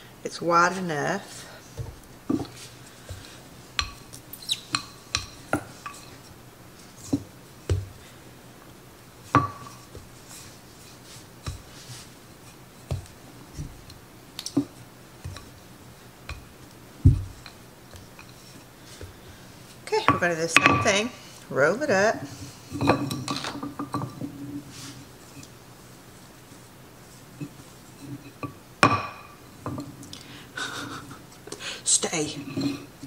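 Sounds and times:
rolling pin knocking on counter: 17.0 - 17.4.

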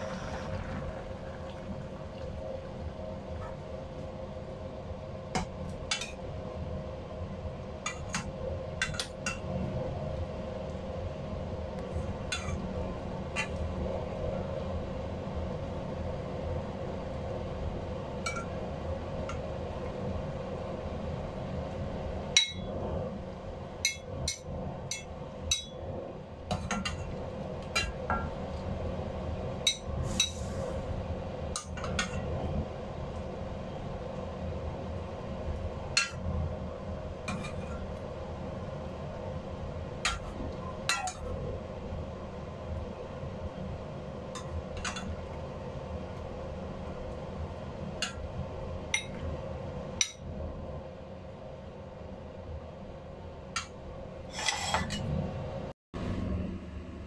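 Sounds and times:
low steady hum: 0.0 - 57.0
metal spoon clinking against a saucepan: 22.4 - 22.7, 23.8 - 25.8, 29.6 - 30.4, 36.0 - 36.2, 40.0 - 41.3, 50.0 - 50.2.

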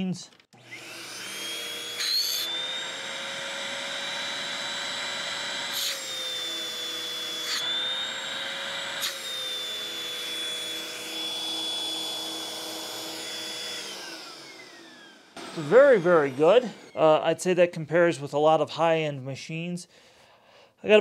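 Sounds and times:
vacuum motor whining: 0.5 - 17.0.

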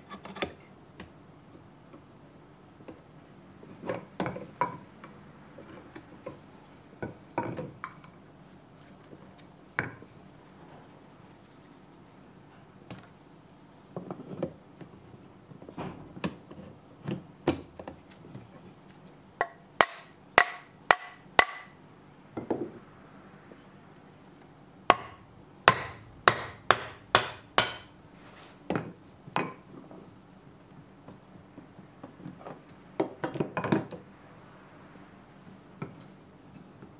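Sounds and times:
hammer tapping metal blade: 24.9 - 27.9.

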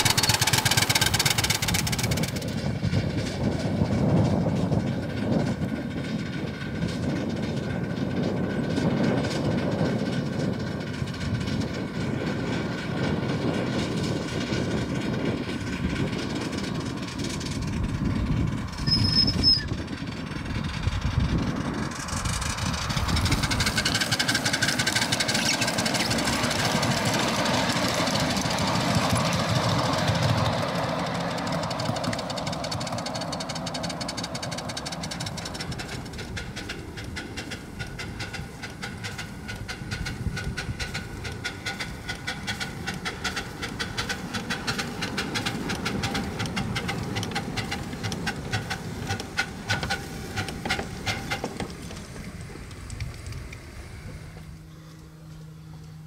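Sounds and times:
steam locomotive beats: 0.0 - 56.0
wheels rumbling on rail: 0.0 - 56.0.

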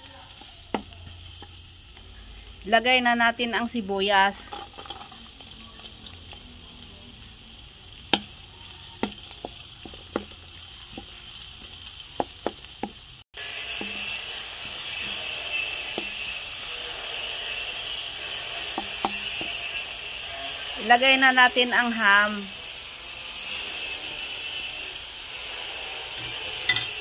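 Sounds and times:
wooden spatula stirring: 0.0 - 2.6, 4.4 - 6.4, 8.1 - 21.5
onion and garlic sizzling in oil: 0.0 - 27.0.

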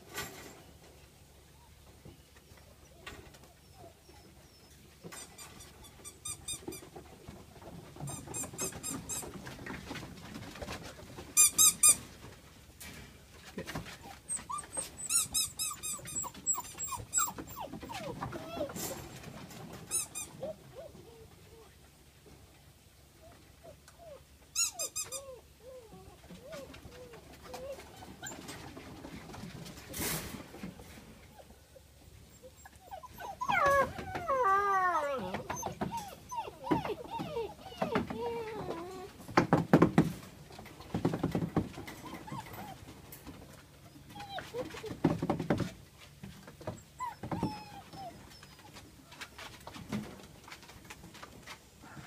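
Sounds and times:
puppies pattering and shuffling: 0.0 - 52.0
puppies whimpering: 2.8 - 6.1, 14.0 - 18.8, 23.3 - 28.8, 31.3 - 39.2, 42.0 - 42.9, 43.8 - 45.0, 46.8 - 48.8.

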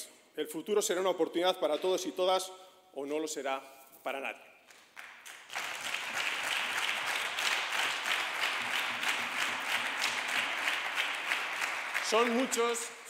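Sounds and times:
crowd applauding: 4.7 - 13.0.

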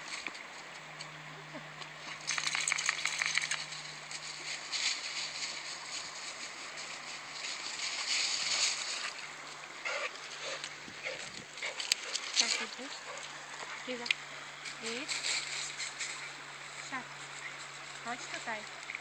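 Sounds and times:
dry leaves crunching underfoot: 2.2 - 13.4.

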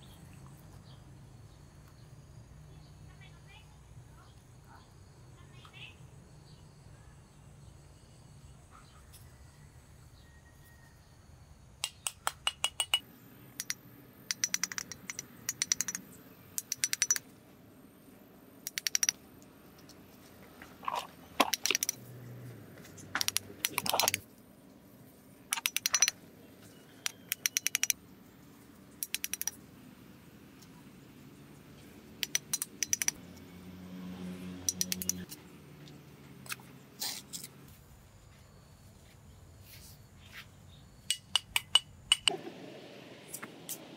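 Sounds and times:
trowel tapping bricks: 11.8 - 13.0, 41.1 - 42.4.

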